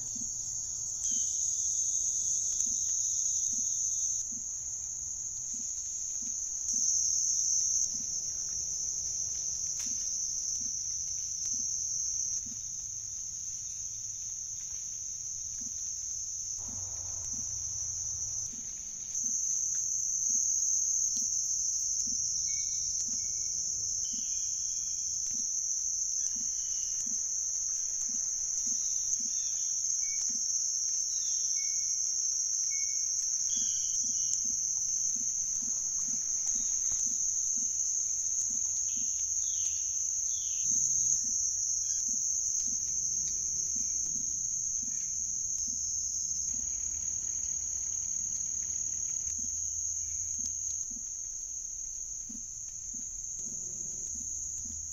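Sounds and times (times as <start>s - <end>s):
high-pitched insect chorus: 0.0s - 54.9s
faint bird chirps: 22.0s - 25.5s, 32.7s - 45.8s.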